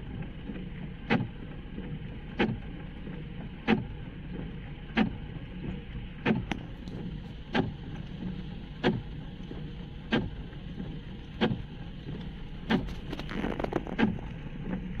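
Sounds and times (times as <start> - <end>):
steady low hum: 0.0 - 15.0
windscreen wipers thumping: 0.4 - 15.0.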